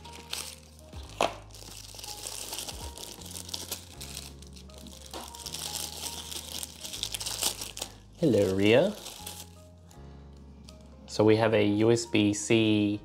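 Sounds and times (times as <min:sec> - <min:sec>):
packaging crinkling and rustling: 0:00.0 - 0:09.6.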